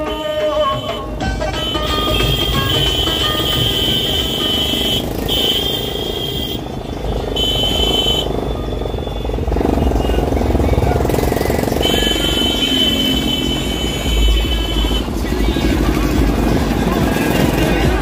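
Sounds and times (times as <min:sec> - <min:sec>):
truck and motorcycle engines: 0:00.0 - 0:18.0.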